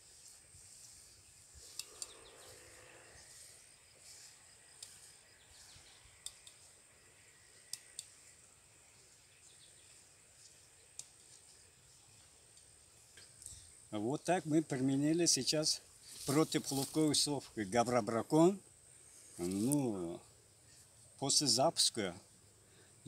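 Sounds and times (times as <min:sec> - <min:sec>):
steady high hiss: 0:00.0 - 0:23.0
sharp clicks: 0:01.7 - 0:02.2, 0:07.7 - 0:08.2.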